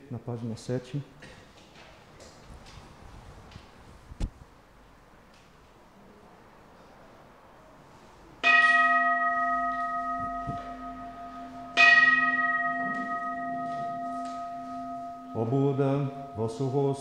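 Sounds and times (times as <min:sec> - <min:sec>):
bowl bell ringing: 0:08.4 - 0:17.0.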